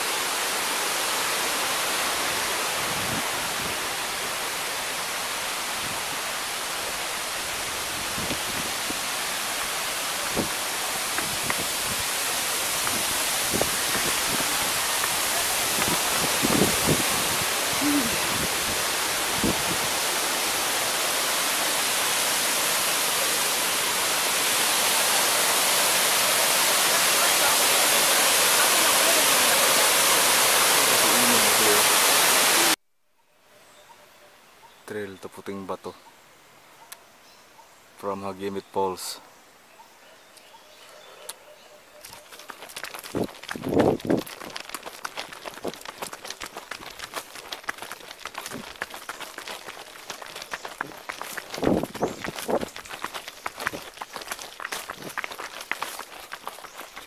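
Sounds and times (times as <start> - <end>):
waterfall rushing: 0.0 - 32.8, 42.0 - 57.0
footsteps on rocky path: 10.2 - 19.9, 42.0 - 57.0.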